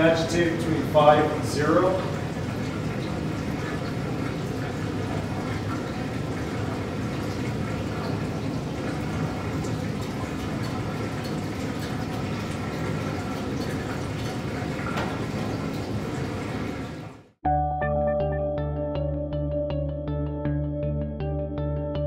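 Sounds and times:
water running into a sink: 0.0s - 17.3s.

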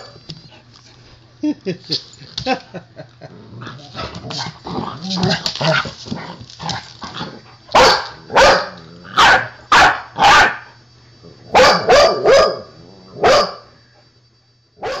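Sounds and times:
dog barking in play: 7.7s - 10.7s, 11.5s - 13.7s, 14.8s - 15.0s.

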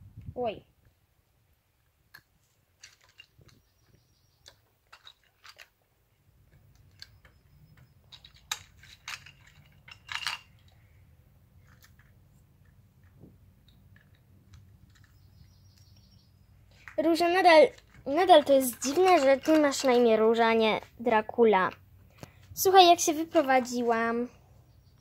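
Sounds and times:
plastic toys clicking and clattering: 2.8s - 5.8s, 6.4s - 10.9s, 11.5s - 16.0s, 16.7s - 24.0s.

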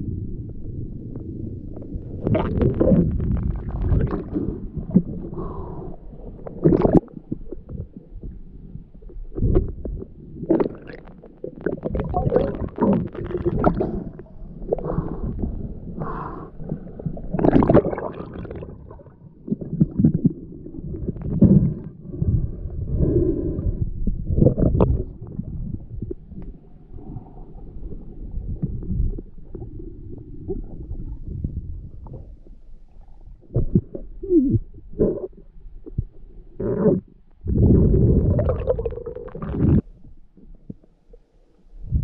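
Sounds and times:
low rumbles: 0.0s - 17.9s, 18.6s - 42.0s
muffled underwater gurgling: 0.0s - 42.0s.

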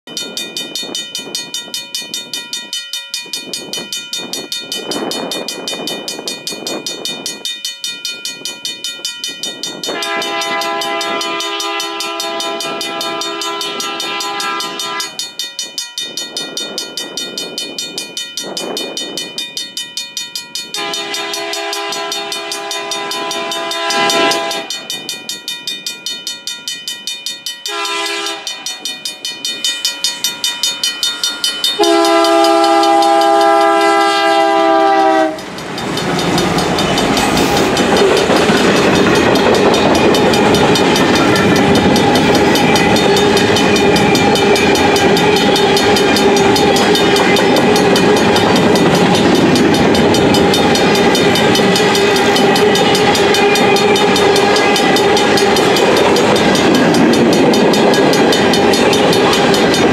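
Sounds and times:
bell ringing: 0.1s - 34.1s, 35.0s - 59.9s
locomotive horn blasts: 9.9s - 15.2s, 20.8s - 24.7s, 27.7s - 28.8s, 31.8s - 35.5s.

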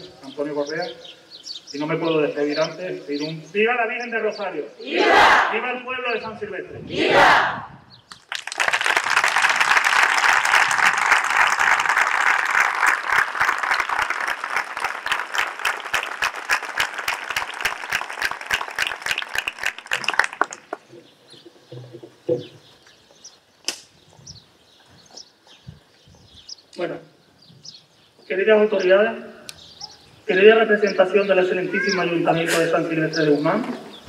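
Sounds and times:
crowd applauding: 8.1s - 20.8s.

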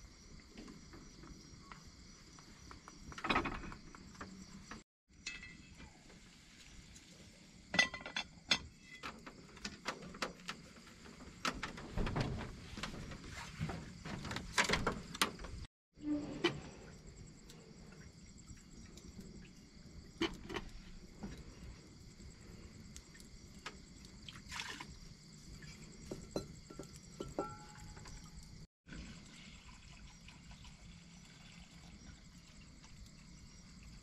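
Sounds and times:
insects chirring: 0.0s - 34.0s
cookware clicks and knocks: 7.8s - 9.1s, 26.1s - 28.1s.

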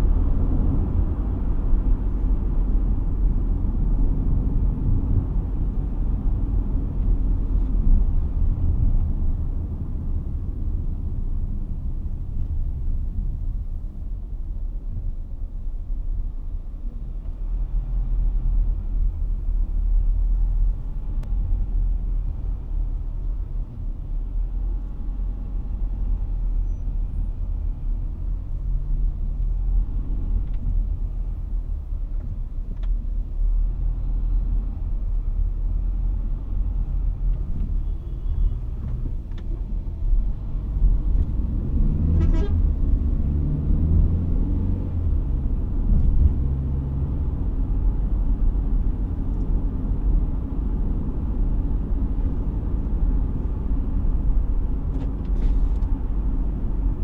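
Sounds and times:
car engine and road rumble: 0.0s - 57.0s.

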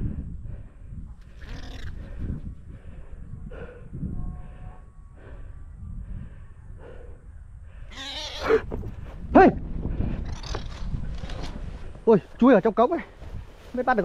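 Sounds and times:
person breathing hard: 0.0s - 9.1s
low wind rumble: 0.0s - 14.0s.

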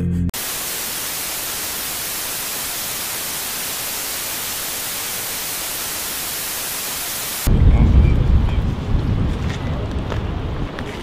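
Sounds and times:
white noise hiss: 0.4s - 7.5s.

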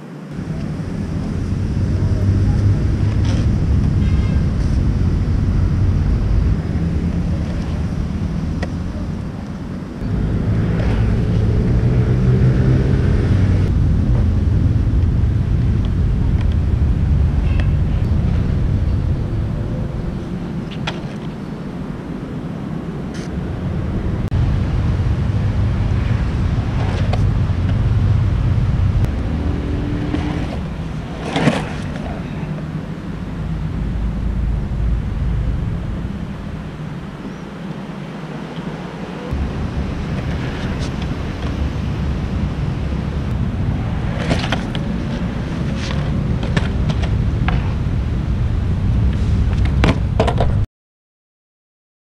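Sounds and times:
skateboard wheels rolling on concrete: 0.0s - 50.6s
skateboard clacking: 30.1s - 32.7s.

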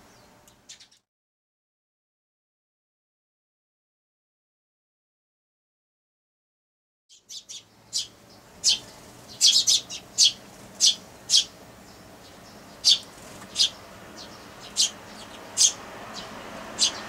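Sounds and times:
sparrows chirping: 0.0s - 1.0s, 7.1s - 17.0s.

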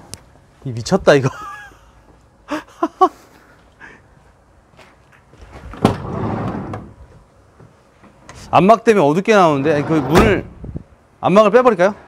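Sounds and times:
sliding door rolling on track: 5.8s - 7.0s, 9.6s - 10.5s.

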